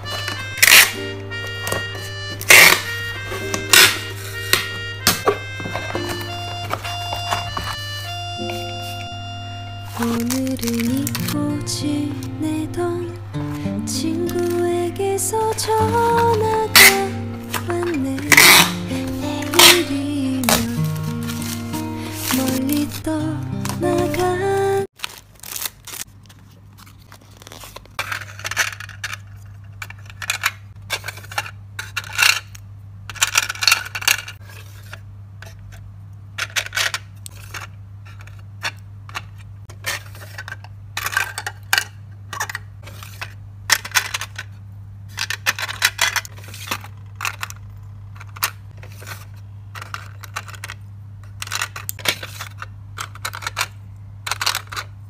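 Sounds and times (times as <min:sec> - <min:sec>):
hair clips clinking in plastic drawer: 0:09.9 - 0:11.4, 0:15.5 - 0:18.8, 0:28.0 - 0:32.5, 0:36.4 - 0:49.2, 0:49.8 - 0:55.0.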